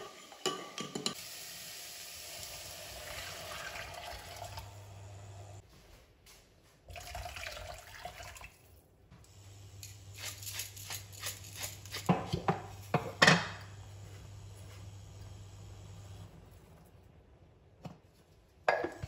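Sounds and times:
water pouring into saucepan: 1.2s - 5.3s, 6.9s - 8.6s
salt mill grinding: 9.8s - 12.2s.

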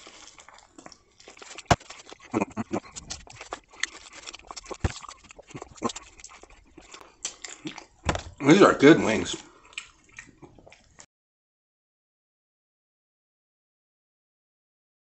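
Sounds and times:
man eating noisily: 0.0s - 11.1s.

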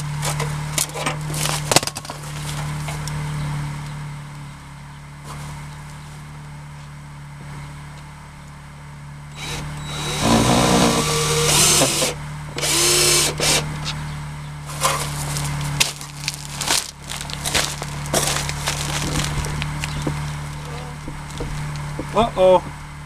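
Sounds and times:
cordless drill running: 9.3s - 13.7s
sharp knocks and clicks: 21.0s - 22.8s.

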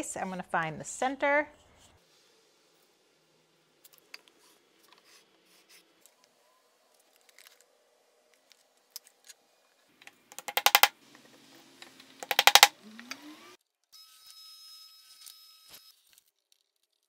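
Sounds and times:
steel ruler clicks: 10.4s - 10.9s, 12.2s - 12.7s.

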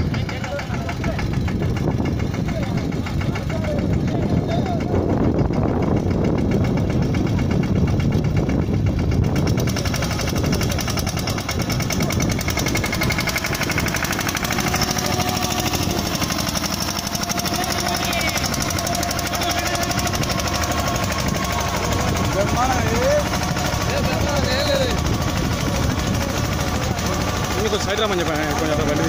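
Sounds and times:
diesel tractor engine knocking: 0.0s - 29.0s.

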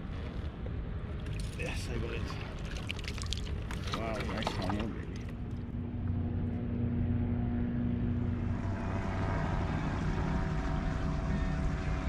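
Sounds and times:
engine drone: 4.7s - 12.0s.

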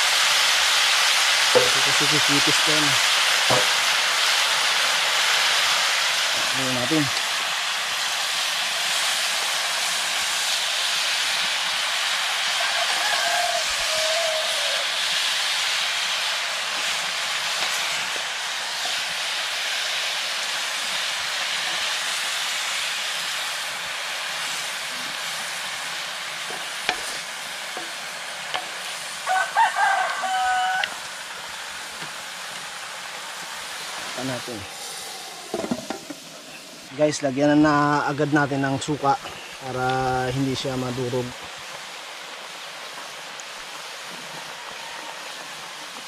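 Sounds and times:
meat sizzling in a wok: 0.0s - 46.0s
rooster crowing: 12.3s - 15.1s, 29.2s - 31.2s, 44.2s - 45.9s.

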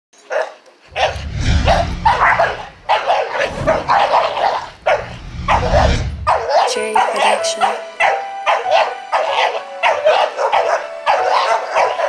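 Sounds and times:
dog barking rapidly: 2.1s - 5.6s, 6.2s - 7.2s, 8.0s - 12.0s.

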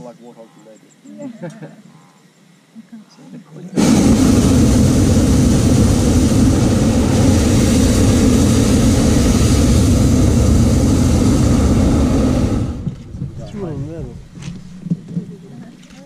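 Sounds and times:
propane burner blast: 3.8s - 15.0s.

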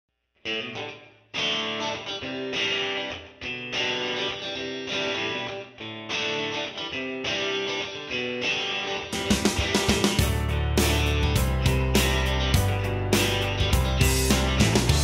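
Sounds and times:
guitar strumming chords: 0.4s - 15.0s.

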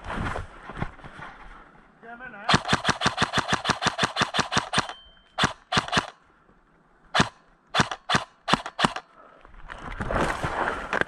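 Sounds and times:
airsoft gun shots: 2.5s - 6.2s, 7.2s - 9.0s.

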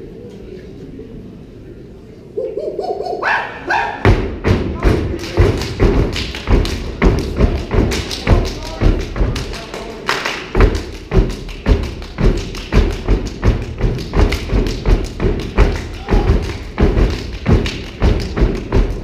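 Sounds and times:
stomping and clapping in unison: 4.0s - 19.0s.

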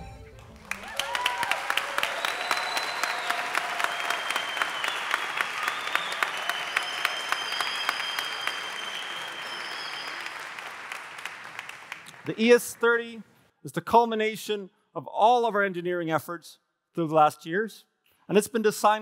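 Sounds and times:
audience applauding: 0.2s - 13.0s.

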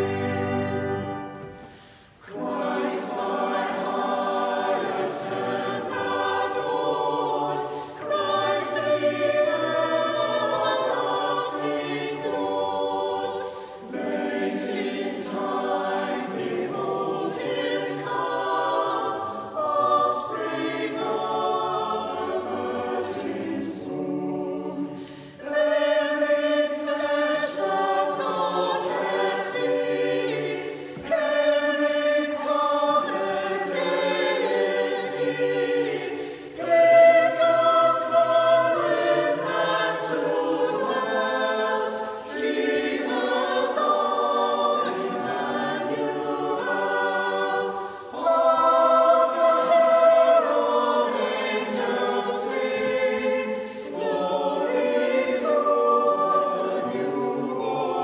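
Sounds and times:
church choir singing a carol: 0.0s - 58.0s.

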